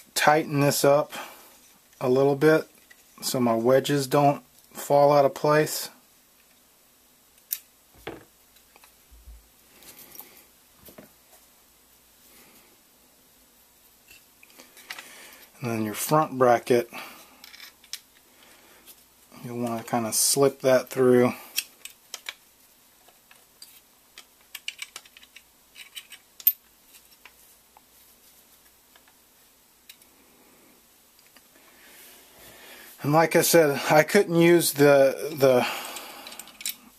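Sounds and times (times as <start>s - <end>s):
metal parts clicking and tapping: 21.6s - 22.4s, 23.3s - 26.7s, 36.2s - 36.8s
metal gun parts handling: 24.5s - 26.6s.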